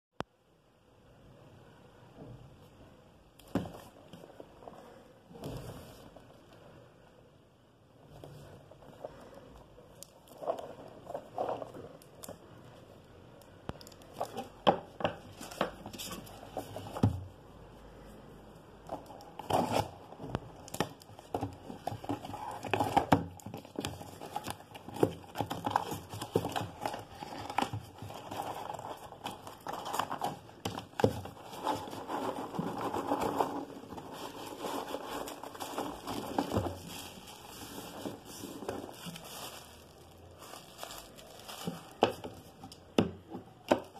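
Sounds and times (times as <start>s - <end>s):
cardboard and packing rustling: 3.4s - 6.6s, 8.0s - 12.9s, 13.8s - 17.4s, 18.8s - 43.9s
plastic film crinkling: 20.6s - 42.9s.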